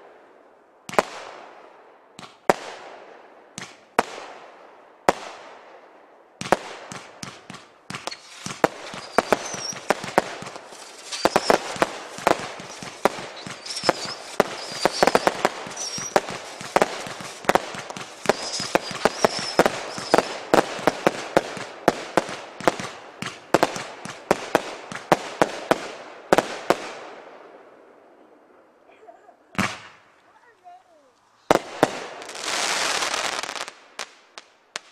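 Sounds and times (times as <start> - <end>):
firework crackle and hiss: 6.4 - 27.0, 31.2 - 34.9
firework cake shots and bursts: 6.5 - 25.9.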